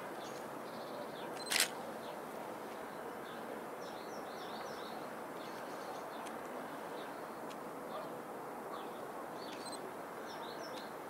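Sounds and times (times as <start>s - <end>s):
small birds chirping: 8.7s - 11.0s.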